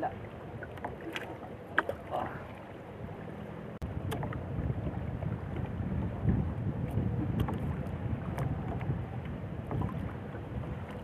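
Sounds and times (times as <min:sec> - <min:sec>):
wind on microphone: 0:03.8 - 0:11.0.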